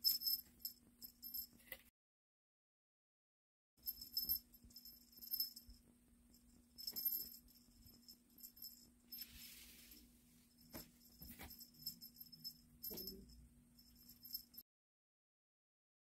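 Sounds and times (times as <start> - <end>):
small jingle bell jingling: 0.0 - 1.8, 3.8 - 14.6.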